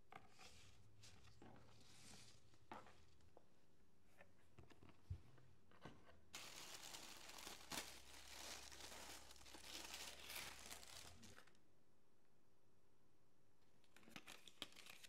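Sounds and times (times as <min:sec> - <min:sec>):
tissue paper rustling: 0:06.3 - 0:11.5.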